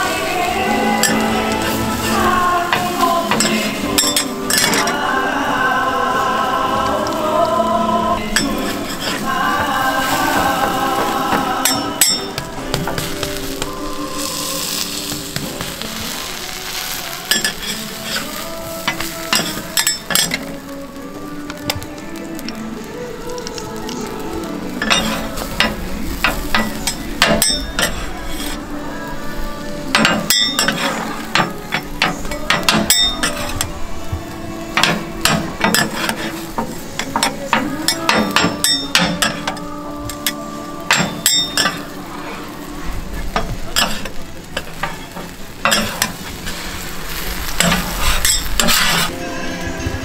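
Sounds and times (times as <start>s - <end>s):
food frying and sizzling: 0.0s - 50.0s
metal spatulas clacking and scraping: 24.8s - 28.6s, 29.9s - 33.6s, 43.3s - 46.2s.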